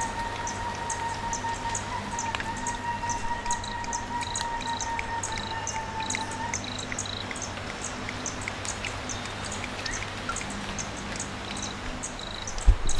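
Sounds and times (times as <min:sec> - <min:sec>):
crickets chirping: 0:11.2 - 0:12.6.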